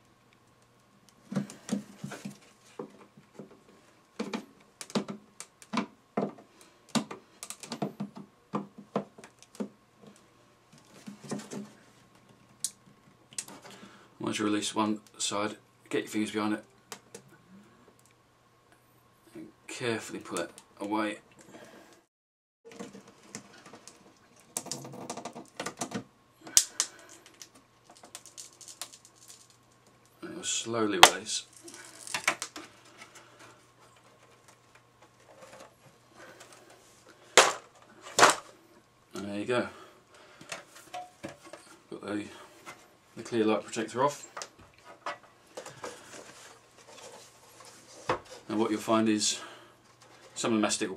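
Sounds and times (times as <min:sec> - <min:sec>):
plastic clicking and creaking: 0:04.2 - 0:08.6
sharp plastic crack: 0:22.7 - 0:29.6, 0:31.0 - 0:32.7, 0:37.3 - 0:38.5.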